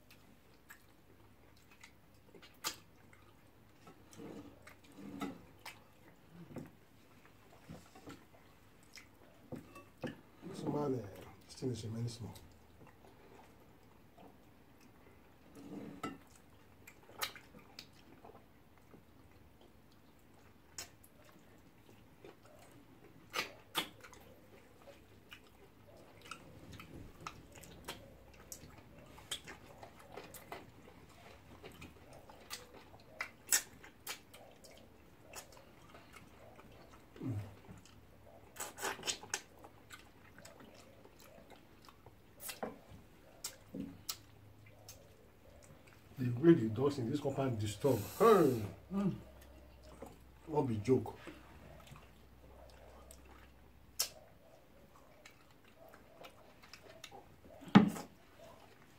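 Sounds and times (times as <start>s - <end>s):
lip smacks: 0.0s - 6.5s, 12.4s - 46.2s, 51.2s - 58.9s
chewing: 0.0s - 58.9s
sucking food off fingers: 51.7s - 58.6s.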